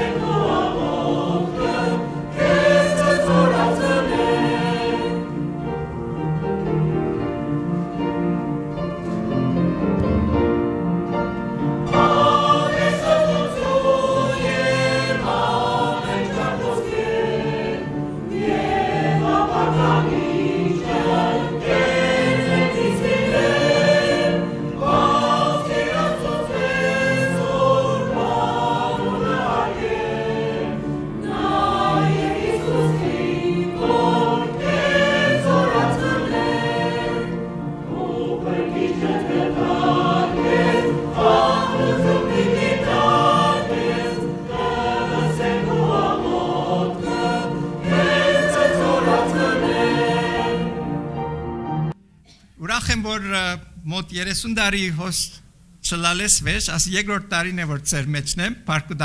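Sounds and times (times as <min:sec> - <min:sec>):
choir singing a hymn: 0:00.0 - 0:52.0.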